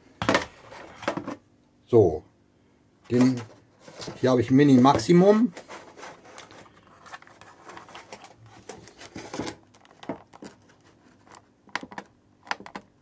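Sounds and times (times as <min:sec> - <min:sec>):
plastic handling rustle: 0:03.1 - 0:12.0.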